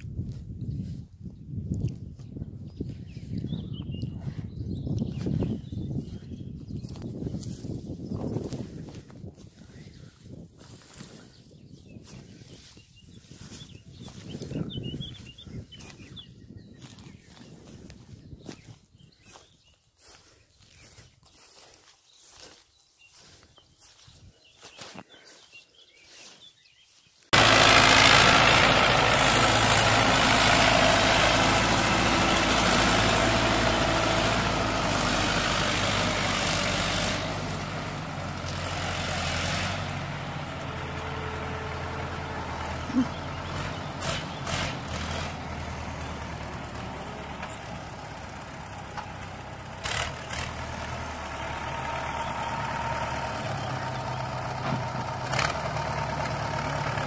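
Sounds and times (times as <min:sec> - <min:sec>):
tractor diesel engine running: 0:27.3 - 0:57.0.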